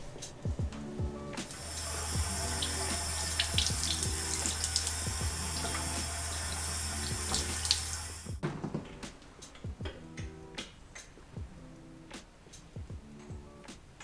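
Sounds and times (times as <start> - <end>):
tap water running: 1.4 - 8.4
water splashing: 1.5 - 8.3.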